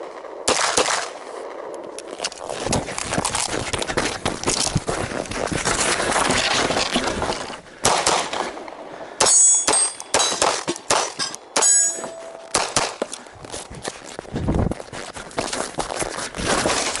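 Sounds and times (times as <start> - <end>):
pistol shots: 0.4 - 1.1, 7.8 - 8.6, 9.2 - 13.0
steel targets clanging: 9.2 - 12.6.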